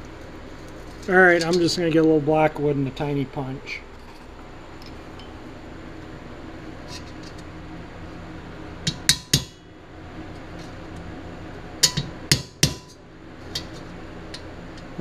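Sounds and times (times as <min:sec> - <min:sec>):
hammer striking metal punch: 0:08.9 - 0:09.6, 0:11.8 - 0:13.0.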